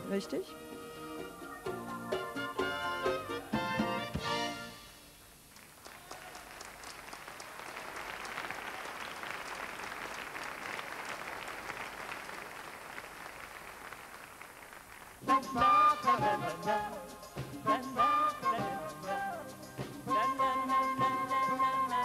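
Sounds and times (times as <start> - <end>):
audience applause: 5.5 - 15.2.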